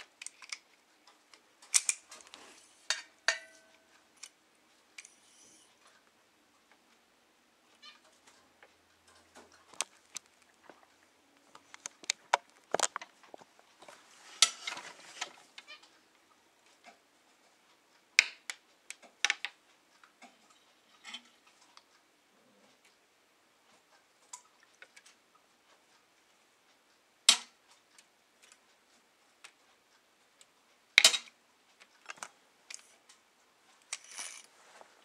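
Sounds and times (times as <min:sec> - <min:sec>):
rustling: 0:00.0 - 0:04.3, 0:07.8 - 0:16.0, 0:31.8 - 0:35.0
light clicks and taps: 0:08.2 - 0:14.0.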